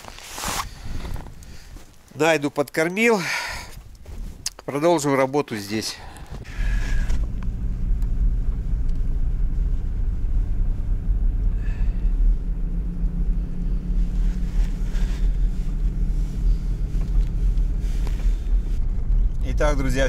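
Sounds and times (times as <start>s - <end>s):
car engine and tyres rumbling: 6.2s - 20.0s.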